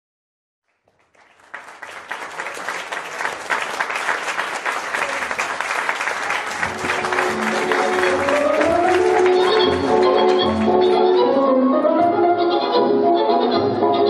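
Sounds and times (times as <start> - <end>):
audience applause: 0.7 - 11.0
tango music: 6.5 - 14.0.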